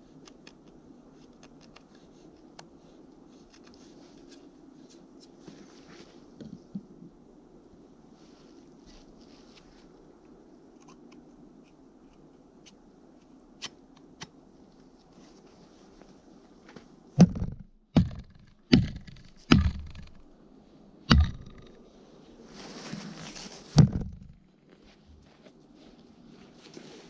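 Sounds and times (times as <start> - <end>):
rustling hiss: 0.0 - 17.6, 18.2 - 27.0
axe chopping into a log: 17.2 - 20.2, 21.1 - 21.7, 23.8 - 24.3.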